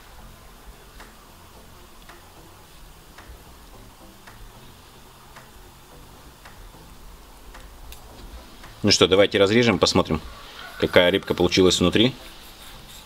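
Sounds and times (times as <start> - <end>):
clock ticking: 0.0 - 9.4.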